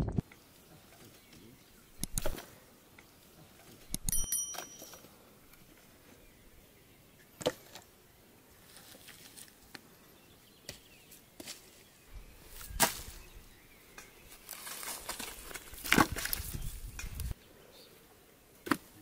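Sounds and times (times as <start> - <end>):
brushwood rustling and crackling: 8.5 - 9.9, 10.6 - 17.4.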